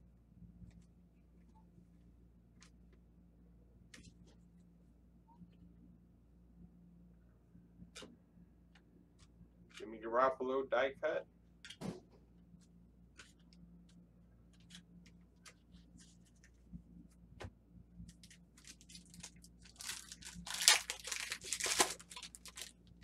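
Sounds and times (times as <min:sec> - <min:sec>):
wrapper tearing and crinkling: 0:18.1 - 0:23.0.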